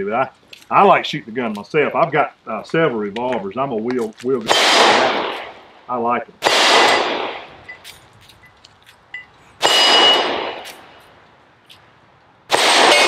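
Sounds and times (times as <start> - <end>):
steel target ringing: 6.4 - 7.8, 9.6 - 11.0, 12.5 - 13.0.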